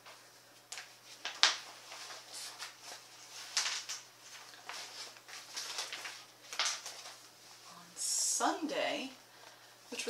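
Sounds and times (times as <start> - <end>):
plastic bag crinkling: 0.8 - 7.4.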